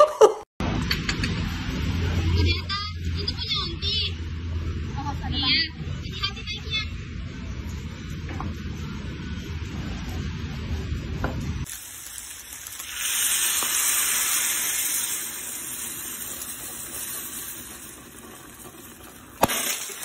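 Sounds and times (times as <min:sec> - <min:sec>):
sauce sizzling and hissing: 0:11.6 - 0:20.0.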